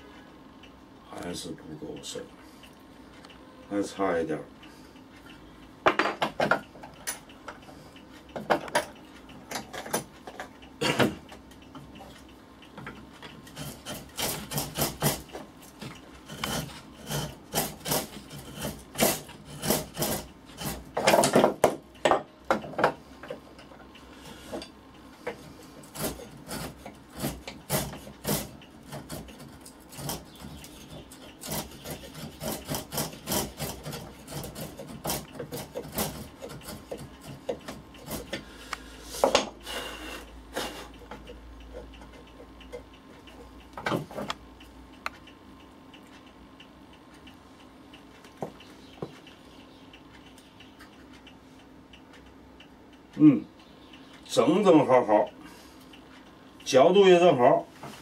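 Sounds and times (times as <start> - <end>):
metal tool filing wood: 13.5 - 15.3, 16.2 - 21.0, 25.3 - 40.9.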